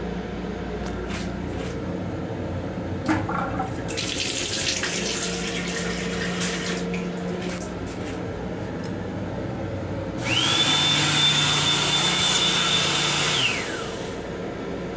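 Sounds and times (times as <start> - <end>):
faucet water running: 3.1 - 8.0
electric hand dryer blowing: 10.2 - 14.3.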